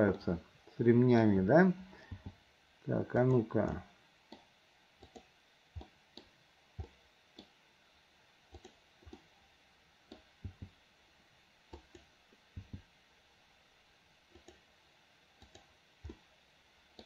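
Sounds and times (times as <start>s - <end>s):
mouse and keyboard clicking: 5.0s - 7.5s, 8.5s - 9.2s, 11.7s - 12.8s, 14.3s - 14.6s, 15.4s - 16.2s.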